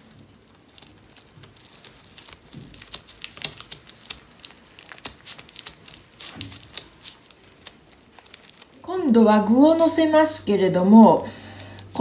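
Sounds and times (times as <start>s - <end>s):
fingers spreading sticky rice: 0.0s - 9.0s.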